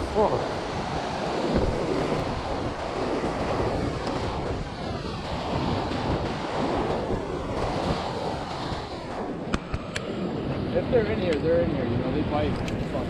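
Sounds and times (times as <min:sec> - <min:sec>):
lake waves washing against rocks: 0:00.0 - 0:10.0
wind noise on microphone: 0:00.0 - 0:13.0.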